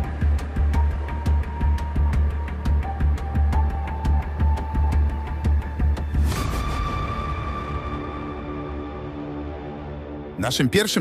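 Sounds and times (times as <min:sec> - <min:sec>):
low pulsing soundtrack beat: 0:00.0 - 0:06.6.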